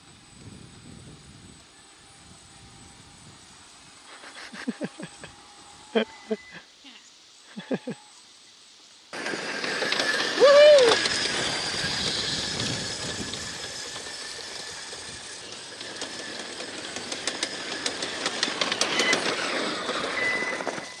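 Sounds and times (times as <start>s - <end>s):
high whine of electric motors: 0.0s - 21.0s
wheels crunching over gravel: 9.2s - 21.0s.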